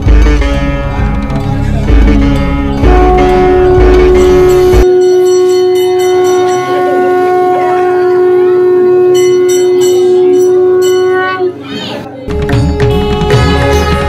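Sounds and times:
conch shell blown: 2.0 - 11.7, 12.6 - 14.0.

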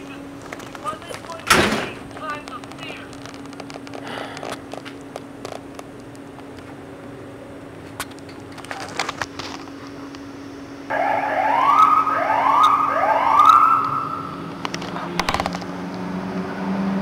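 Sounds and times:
steady low hum: 0.0 - 16.3
siren rising sweeps: 10.9 - 14.6.

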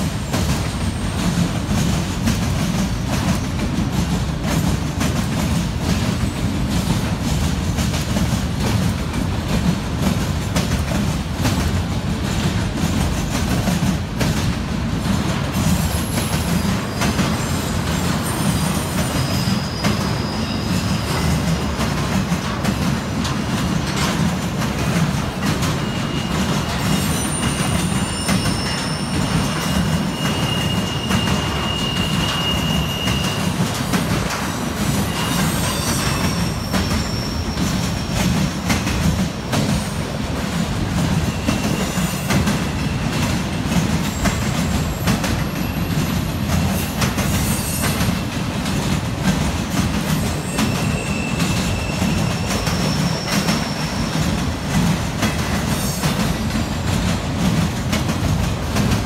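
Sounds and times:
train wheels rumbling and clattering: 0.0 - 59.0
high wheel squeals: 15.9 - 21.5, 25.6 - 34.2, 34.8 - 38.3, 50.1 - 54.4.

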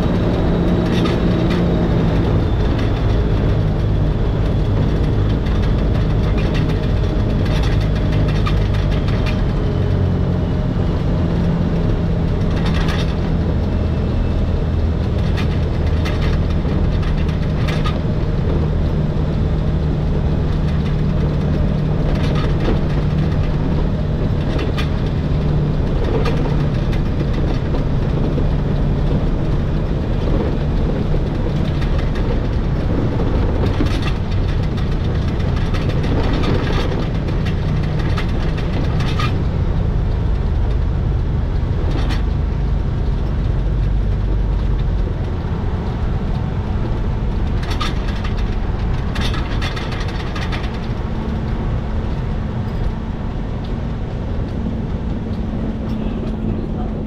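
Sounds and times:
train low drone: 0.0 - 57.0.

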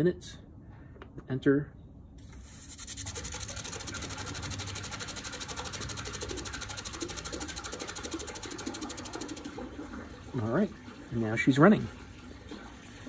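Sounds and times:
water rushing through valve: 2.3 - 13.0
fast fluttering pulse: 2.4 - 9.6.

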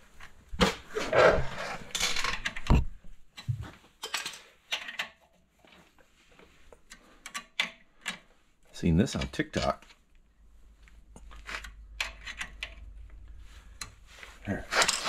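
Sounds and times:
metal clanks and scrapes: 14.4 - 15.0.

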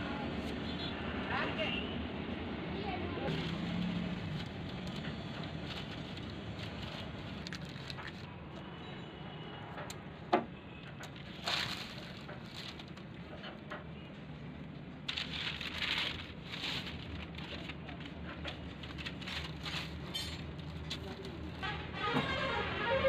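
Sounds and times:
newspaper rustling: 3.3 - 8.3, 11.2 - 13.3, 15.0 - 21.5.

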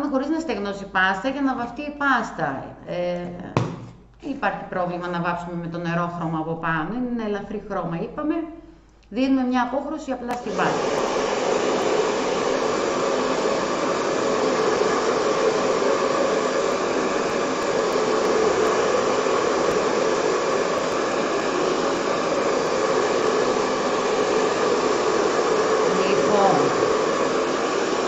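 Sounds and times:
heat gun blowing: 10.3 - 28.0.

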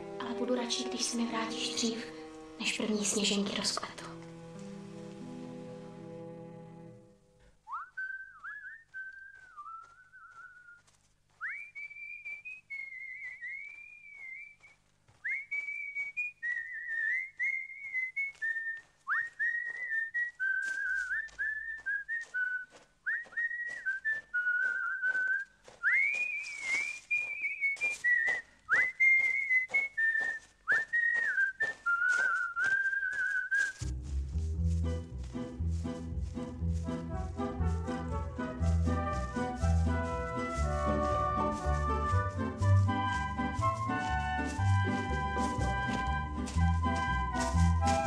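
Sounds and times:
footsteps tapping: 0.7 - 6.1, 7.4 - 48.0
man whistling a lively tune: 7.7 - 33.9.

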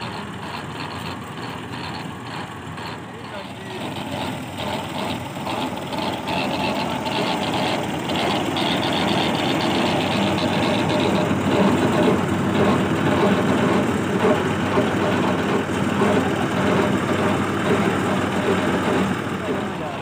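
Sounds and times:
tractor diesel engine knocking: 0.0 - 20.0.

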